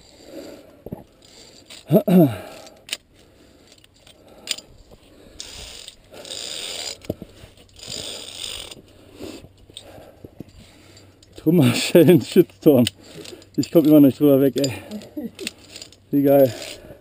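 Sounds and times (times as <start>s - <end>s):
carabiners clinking: 0.9s - 17.0s
metal rasping on cable: 5.3s - 9.5s.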